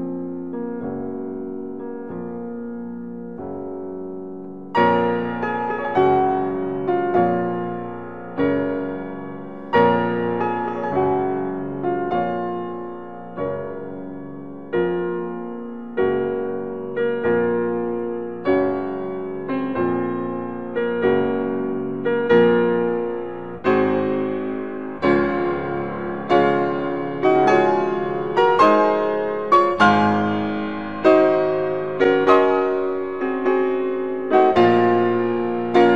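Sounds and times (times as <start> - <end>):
piano chords ringing: 0.0 - 35.9.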